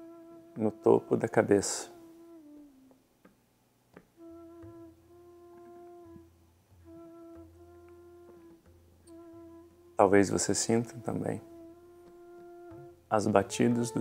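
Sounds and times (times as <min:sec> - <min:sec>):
soft slow background music: 0:00.0 - 0:14.0.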